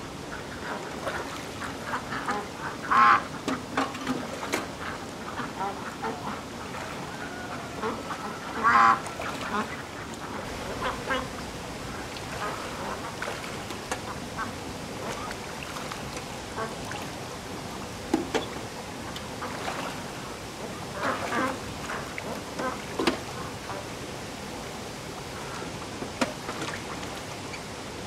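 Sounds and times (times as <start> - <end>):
background noise: 0.0 - 28.0
ducks quacking: 0.3 - 17.2, 20.6 - 23.9.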